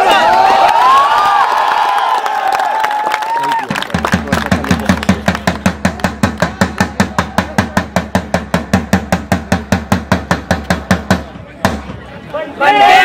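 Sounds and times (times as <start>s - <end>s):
drum beaten in fast rhythm: 3.7s - 12.1s.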